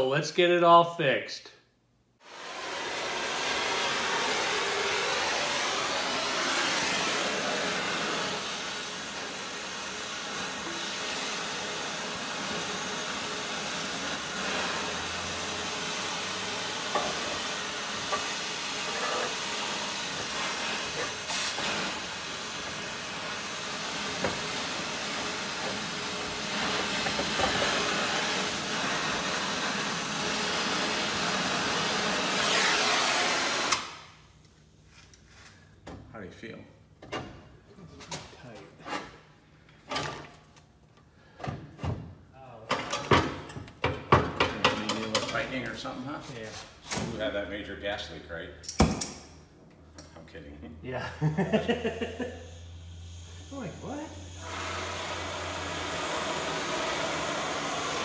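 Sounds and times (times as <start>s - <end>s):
compressed air hissing: 2.2s - 34.0s, 51.7s - 58.0s.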